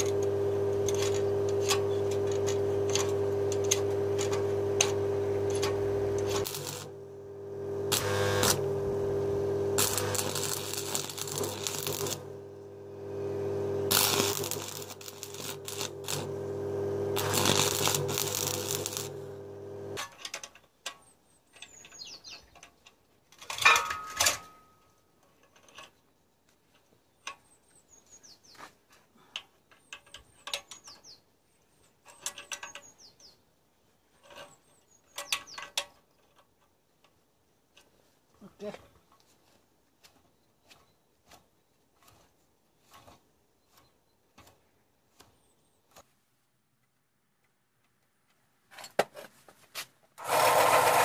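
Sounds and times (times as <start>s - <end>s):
steady hum: 0.0s - 20.0s
welding arc crackling: 0.0s - 20.0s, 50.2s - 51.0s
metal clinks and knocks: 23.4s - 25.9s.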